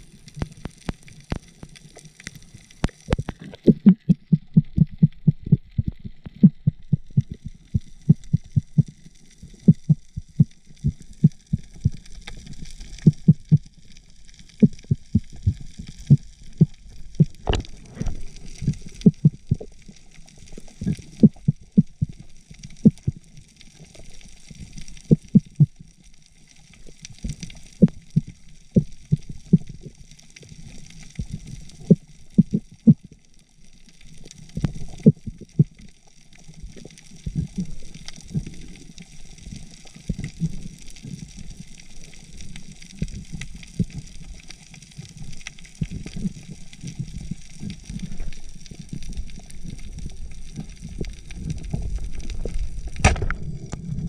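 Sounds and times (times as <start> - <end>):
low underwater rumble: 0.0 - 33.3, 33.9 - 54.0
underwater knocks and thumps: 2.9 - 8.9, 9.6 - 12.1, 13.0 - 13.8, 14.6 - 19.8, 20.8 - 22.2, 25.1 - 25.8, 51.0 - 54.0.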